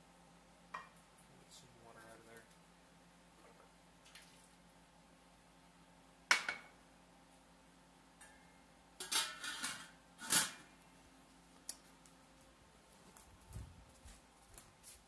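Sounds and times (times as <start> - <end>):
faint steady hum: 0.0 - 15.0
kitchenware clacking and clattering: 9.0 - 10.6.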